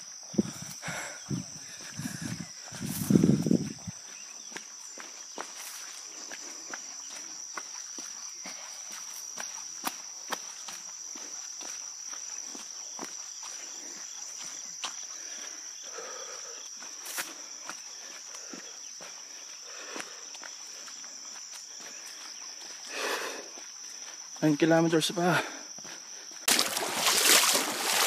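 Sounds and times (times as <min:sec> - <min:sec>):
high-pitched insect chorus: 0:00.0 - 0:28.0
running footsteps on dirt trail: 0:00.0 - 0:28.0.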